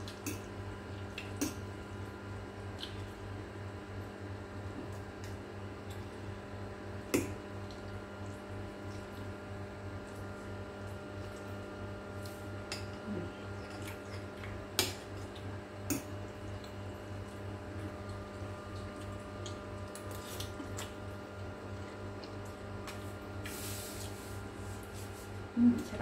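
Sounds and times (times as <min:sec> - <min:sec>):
steady low hum: 0:00.0 - 0:26.0
chewing: 0:12.2 - 0:16.8, 0:17.7 - 0:23.6.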